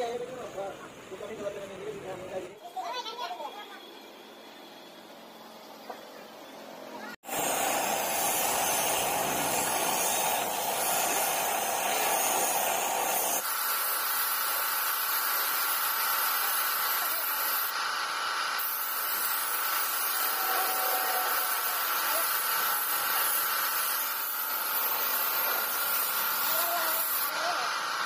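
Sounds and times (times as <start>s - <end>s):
paint spray gun hissing: 7.2s - 28.0s.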